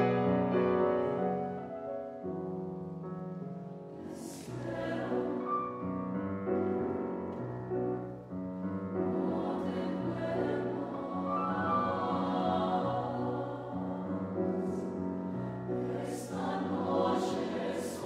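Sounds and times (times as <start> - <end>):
mixed choir singing chords: 0.0 - 2.2, 3.8 - 6.4, 8.8 - 18.0
grand piano accompaniment: 0.0 - 18.0.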